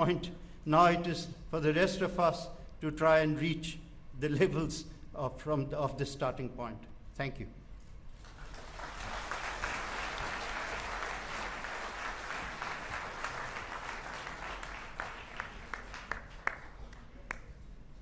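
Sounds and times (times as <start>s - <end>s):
audience applauding: 8.3s - 17.4s.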